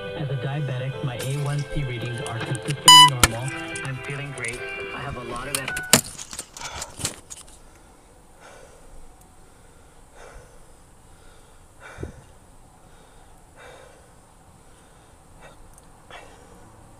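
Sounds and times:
person breathing softly: 7.6s - 16.8s.

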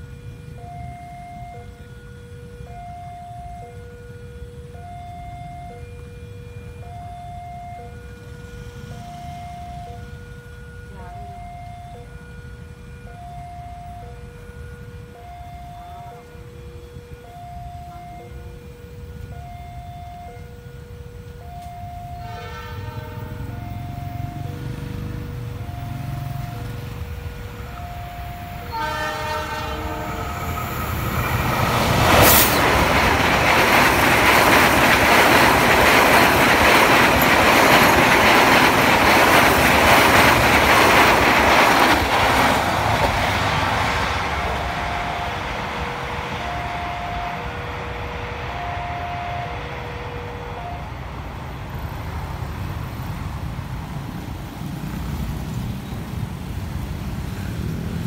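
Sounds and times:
train horn: 0.0s - 26.9s, 27.6s - 41.2s, 41.9s - 51.6s
train passing: 0.0s - 58.0s
two-tone crossing warning: 0.0s - 58.0s
wheels clacking over rail joints: 23.4s - 45.2s.

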